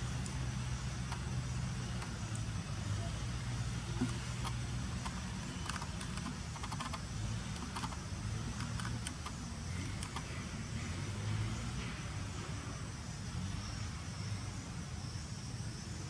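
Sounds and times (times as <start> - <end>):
steady low hum: 0.0 - 16.0
light clicks and ticks: 4.0 - 10.3.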